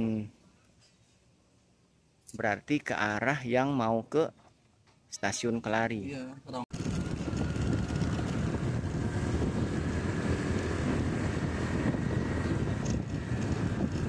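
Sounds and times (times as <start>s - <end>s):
wind buffeting microphone: 6.7s - 14.0s
low vehicle rumble: 6.8s - 14.0s.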